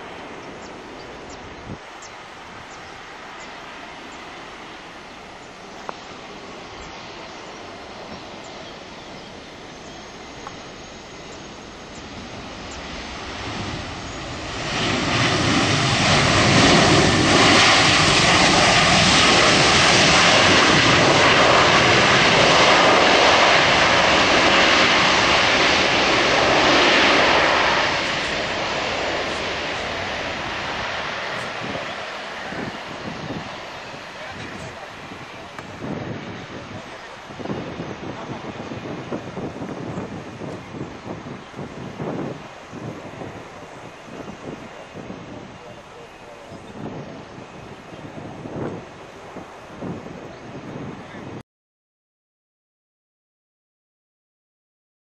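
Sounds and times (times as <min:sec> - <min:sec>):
jet engine noise: 0:00.0 - 0:51.4.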